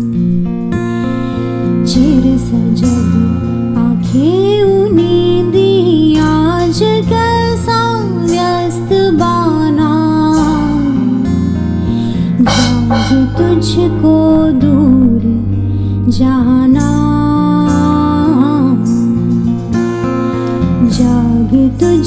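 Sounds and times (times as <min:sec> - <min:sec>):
bass: 0:00.0 - 0:22.0
woman singing: 0:01.8 - 0:11.4, 0:12.4 - 0:19.0, 0:20.8 - 0:22.0
strummed acoustic guitar: 0:10.9 - 0:16.0
cymbal strokes: 0:12.4 - 0:14.9.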